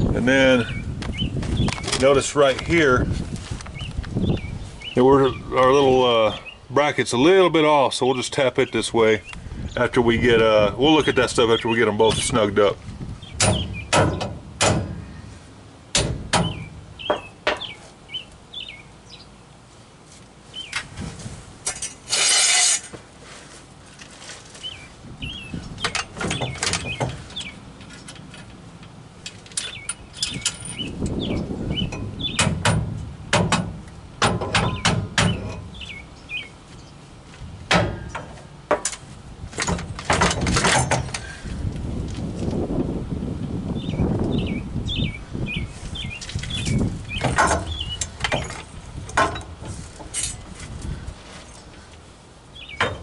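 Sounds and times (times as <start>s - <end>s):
small birds chirping: 0.0s - 3.1s, 3.7s - 14.1s, 16.4s - 19.6s, 20.5s - 20.9s, 24.5s - 28.3s, 29.2s - 32.6s, 34.6s - 37.2s, 43.7s - 49.4s, 50.8s - 53.0s
hand tools clanking on metal: 25.8s - 31.2s, 37.7s - 41.4s, 46.4s - 51.0s.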